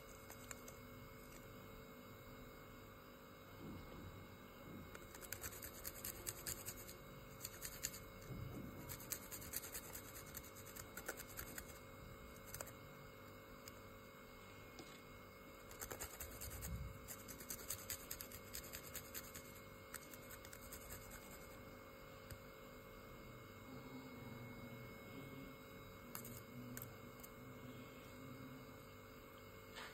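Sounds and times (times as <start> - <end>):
garlic rasping on metal grater: 5.0 - 8.1, 8.8 - 11.8, 15.7 - 21.5.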